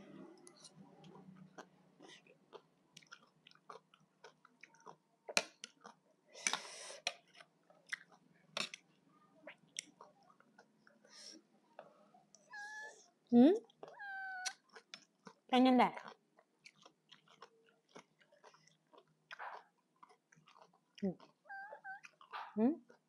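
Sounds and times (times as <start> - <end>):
person chewing crunchy food: 0.6 - 8.8, 13.7 - 15.4, 16.0 - 22.3
mouth clicks: 13.9 - 15.0.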